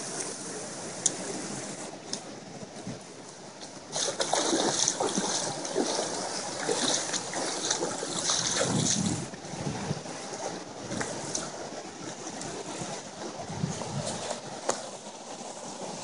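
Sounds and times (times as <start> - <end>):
creek rushing over rocks: 0.0 - 16.0
hands splashing in water: 3.9 - 9.2.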